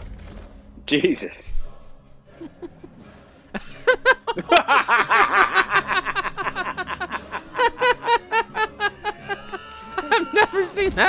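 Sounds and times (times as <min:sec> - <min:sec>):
men laughing loudly: 0:02.3 - 0:10.9.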